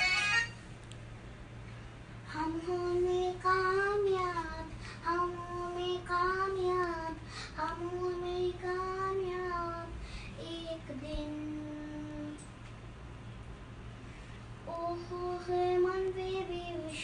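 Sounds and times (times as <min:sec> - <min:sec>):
steady low hum: 0:00.0 - 0:17.0
girl singing unaccompanied: 0:02.2 - 0:12.5, 0:14.6 - 0:17.0.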